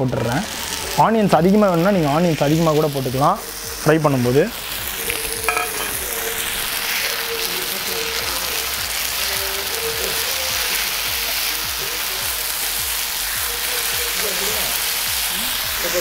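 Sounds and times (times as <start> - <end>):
faint background music: 0.0 - 16.0
food sizzling on iron griddle: 0.0 - 16.0
metal spatula stirring: 5.4 - 6.6.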